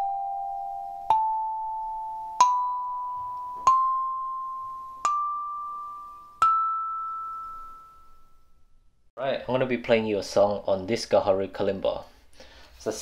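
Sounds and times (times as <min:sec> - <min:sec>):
kalimba notes plucked: 0:00.0 - 0:08.2.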